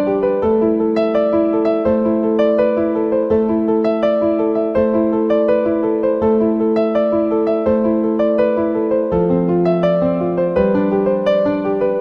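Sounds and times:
slow keyboard melody: 0:00.0 - 0:12.0.

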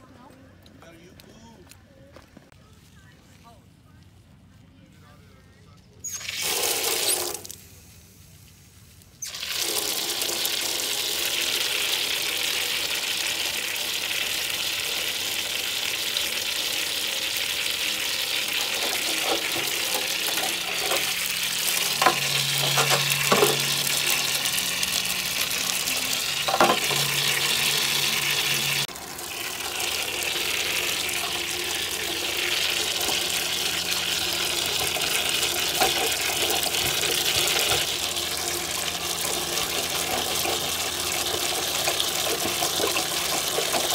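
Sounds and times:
water splashing into metal grill: 0:06.1 - 0:07.6, 0:09.2 - 0:43.9
water hissing on hot metal: 0:06.1 - 0:43.9.

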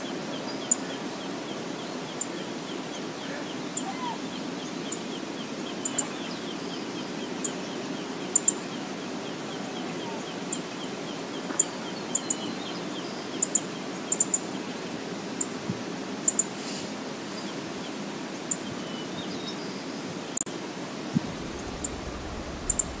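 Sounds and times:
steady rushing hiss: 0:00.0 - 0:18.9, 0:20.0 - 0:23.0
small bird chirping: 0:00.5 - 0:01.0, 0:03.5 - 0:08.8, 0:09.6 - 0:14.5, 0:16.2 - 0:16.5, 0:21.4 - 0:23.0
sharp high ticks: 0:21.8 - 0:23.0.

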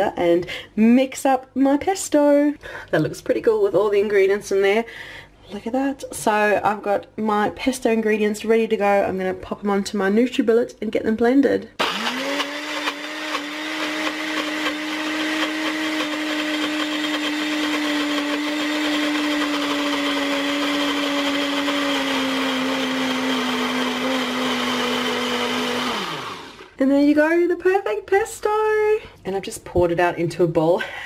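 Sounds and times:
blender motor whining: 0:11.8 - 0:26.8.

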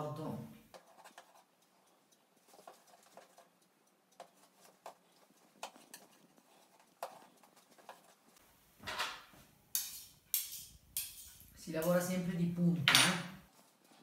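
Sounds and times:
metal spatula tapping and scraping: 0:00.7 - 0:08.4, 0:09.7 - 0:12.2.

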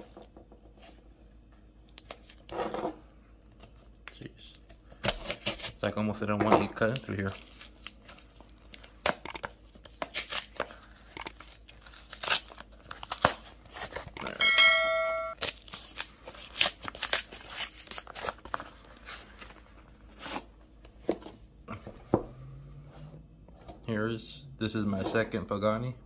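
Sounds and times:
paper ripping and crinkling: 0:09.7 - 0:14.2, 0:15.4 - 0:20.5.

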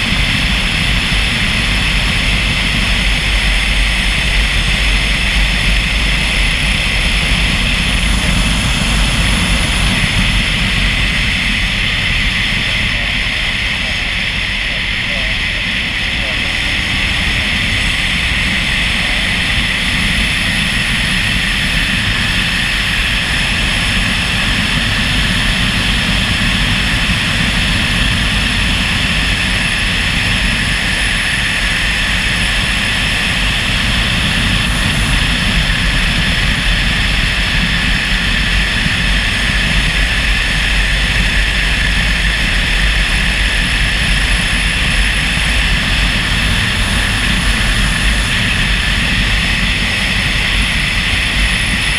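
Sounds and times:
motorcycle engine drone: 0:00.0 - 0:51.9
wind rushing over microphone: 0:00.0 - 0:51.9.

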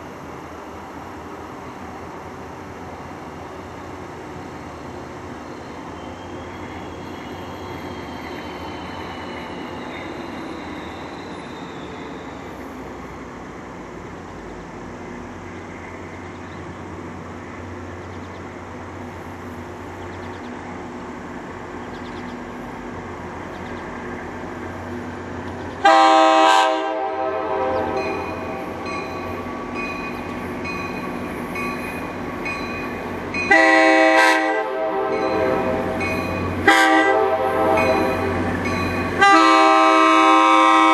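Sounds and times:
diesel locomotive engine rumble: 0:00.0 - 0:40.9
locomotive air horn chord: 0:25.8 - 0:28.6, 0:33.5 - 0:38.5, 0:39.1 - 0:40.9.

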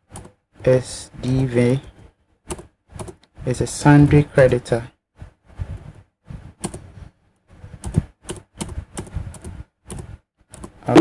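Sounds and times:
computer keyboard typing: 0:00.1 - 0:00.4, 0:02.5 - 0:03.3, 0:06.6 - 0:06.9, 0:07.8 - 0:11.0.

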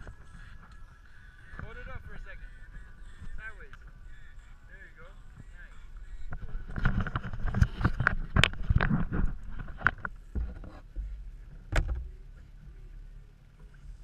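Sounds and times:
low wind rumble: 0:00.0 - 0:14.0
knocks and clatter in canoe: 0:06.3 - 0:12.8.

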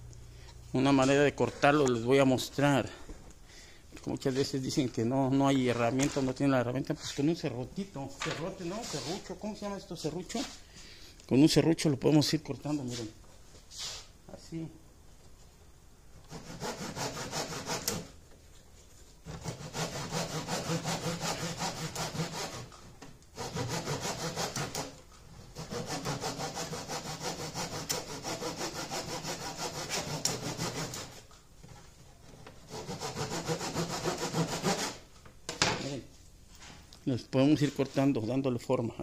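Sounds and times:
handsaw cutting wood: 0:16.3 - 0:18.2, 0:19.2 - 0:31.2, 0:32.7 - 0:35.1.

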